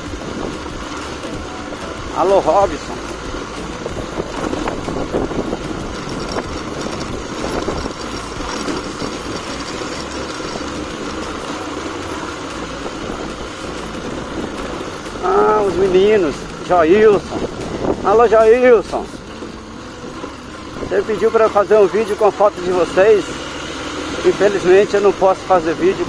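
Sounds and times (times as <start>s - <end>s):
vehicle engine and road noise: 0.0s - 26.0s
light knocks and rattles: 4.4s - 11.9s.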